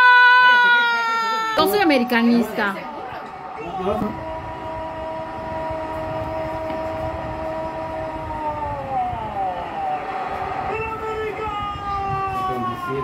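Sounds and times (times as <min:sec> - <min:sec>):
stadium crowd roar: 0:00.0 - 0:13.0.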